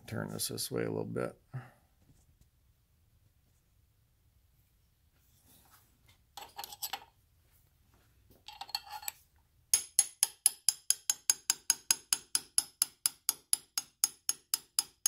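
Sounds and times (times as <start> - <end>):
hammer tapping metal punch: 9.8 - 15.0.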